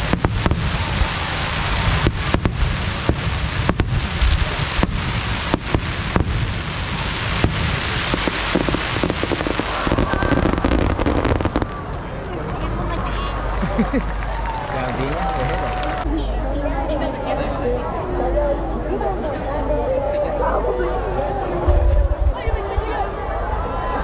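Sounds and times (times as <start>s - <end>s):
firework shells bursting: 0.0s - 11.7s
dense rush of noise: 0.0s - 16.9s.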